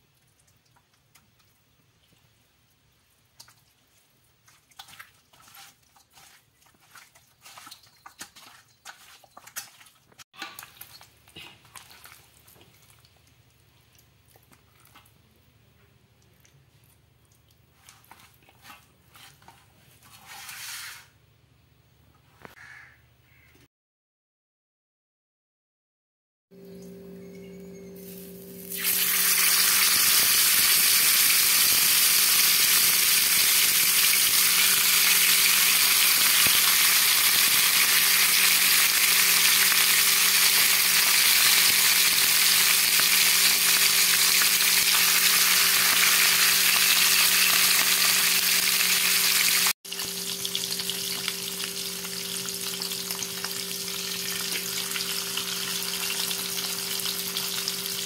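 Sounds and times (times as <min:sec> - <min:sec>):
fish sizzling in hot oil: 0:28.0 - 0:58.0.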